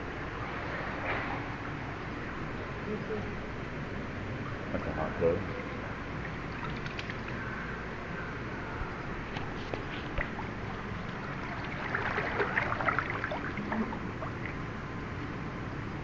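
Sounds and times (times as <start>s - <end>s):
pool water splashing: 3.4s - 15.8s.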